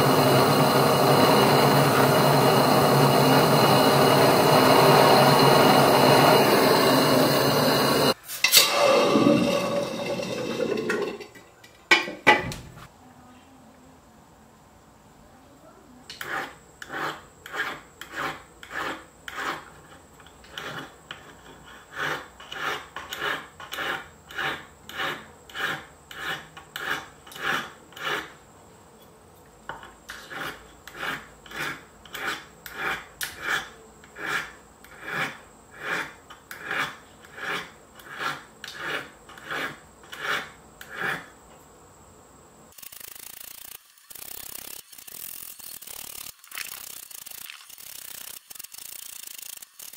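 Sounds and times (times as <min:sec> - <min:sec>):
file scraping metal spoon: 0:16.1 - 0:28.4, 0:29.8 - 0:41.3
steady hiss: 0:41.6 - 0:49.9.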